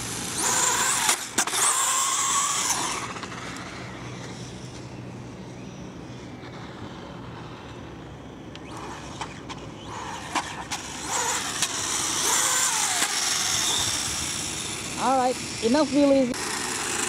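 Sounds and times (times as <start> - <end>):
electric motor whining: 0.0 - 4.8, 8.5 - 17.0.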